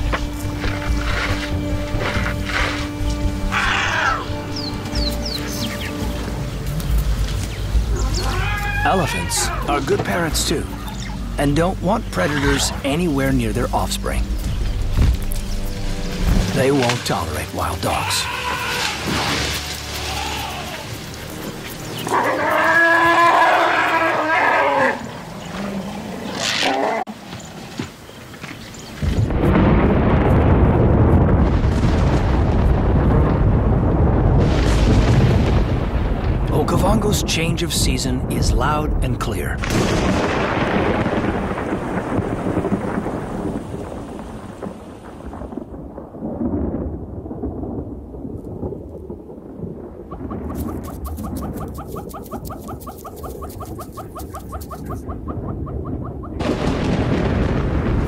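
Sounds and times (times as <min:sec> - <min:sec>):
elephant trumpeting: 0:03.5 - 0:04.4, 0:07.9 - 0:09.8, 0:18.0 - 0:21.0, 0:22.0 - 0:27.2
thunder rumbling: 0:29.0 - 0:58.0.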